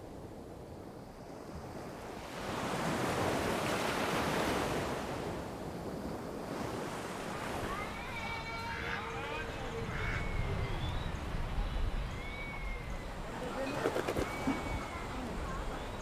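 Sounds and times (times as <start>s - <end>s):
sea surf washing onto beach: 2.0s - 16.0s.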